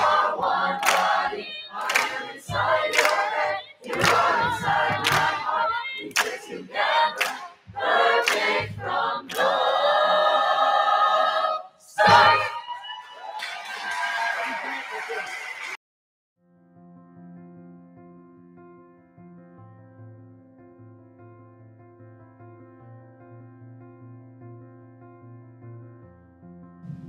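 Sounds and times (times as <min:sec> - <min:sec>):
choir singing upbeat song: 0:00.0 - 0:14.6.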